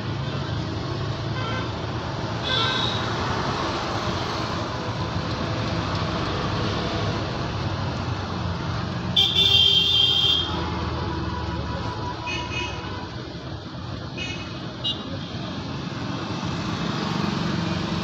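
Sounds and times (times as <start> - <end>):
motorcycles and cars passing: 0.0 - 18.0
vehicle horn: 9.2 - 10.7.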